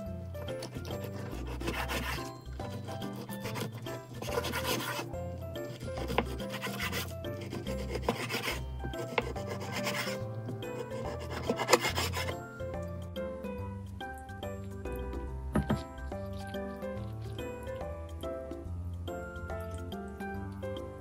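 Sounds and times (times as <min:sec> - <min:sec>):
knife slicing fish on board: 0:00.4 - 0:10.2, 0:10.8 - 0:12.4.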